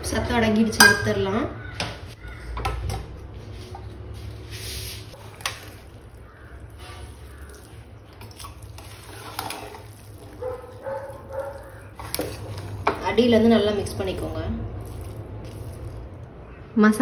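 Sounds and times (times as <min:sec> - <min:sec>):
ladle stirring rice: 0:04.8 - 0:13.1.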